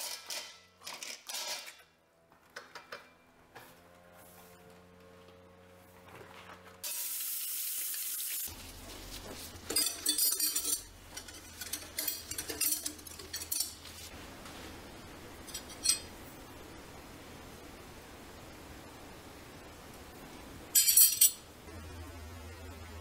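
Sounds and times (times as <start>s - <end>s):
steady hiss: 6.8s - 11.2s
cloth rustling: 8.5s - 14.8s
metal cutlery clinking: 9.4s - 14.1s, 15.4s - 16.1s, 20.8s - 21.4s.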